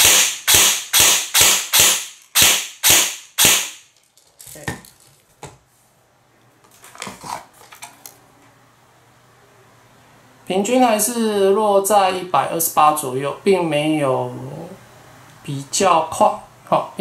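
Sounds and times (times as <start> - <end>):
airsoft gun shots: 0.0 - 3.9.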